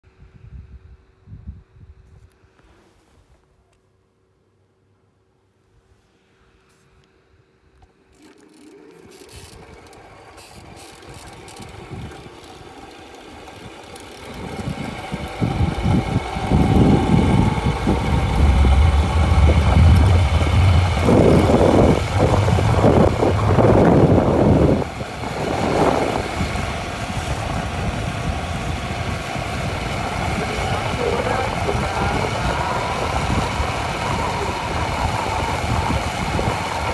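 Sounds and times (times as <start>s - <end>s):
wind rumbling on microphone: 0.2s - 2.3s, 14.2s - 36.9s
motorized bicycle motor: 7.8s - 36.9s.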